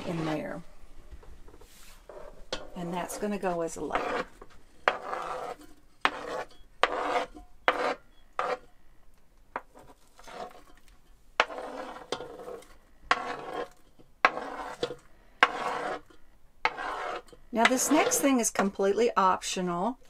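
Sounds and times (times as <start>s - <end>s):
spoon scraping cutting board: 0.0s - 0.6s, 1.5s - 8.8s, 9.6s - 18.7s.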